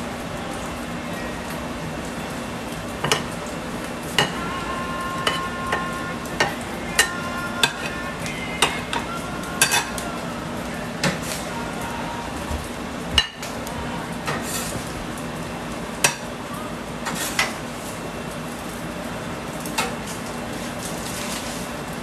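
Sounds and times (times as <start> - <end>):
fried rice sizzling: 0.0 - 22.0
metal tongs clinking on griddle: 4.2 - 4.5, 5.2 - 8.0, 8.6 - 10.1.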